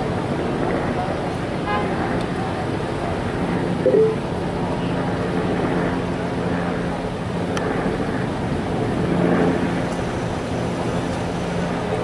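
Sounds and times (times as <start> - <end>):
street traffic: 0.0 - 7.3.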